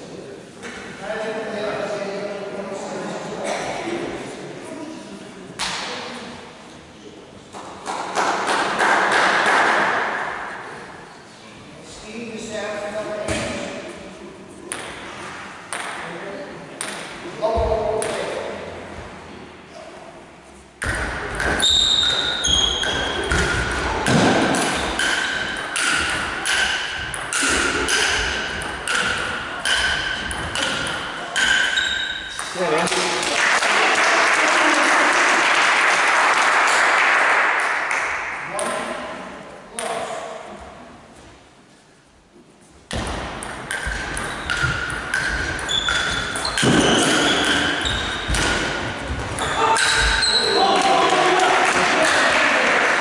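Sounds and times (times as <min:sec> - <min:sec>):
table tennis ball hits: 0:14.7 - 0:15.1, 0:15.7 - 0:16.1, 0:16.8 - 0:17.2, 0:20.8 - 0:33.3, 0:42.9 - 0:53.0.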